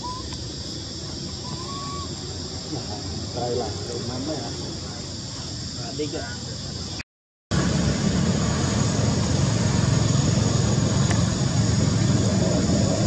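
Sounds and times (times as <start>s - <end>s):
vehicle engine rumbling: 7.5s - 13.0s.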